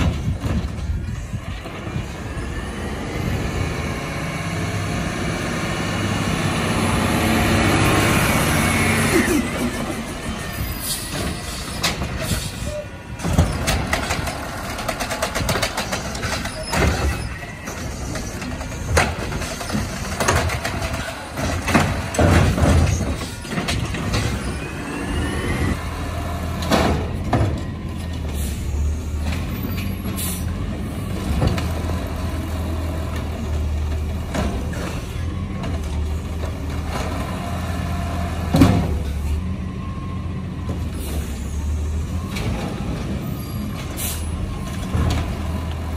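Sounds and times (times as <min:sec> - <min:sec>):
air brake hisses: 0:44.0 - 0:44.3.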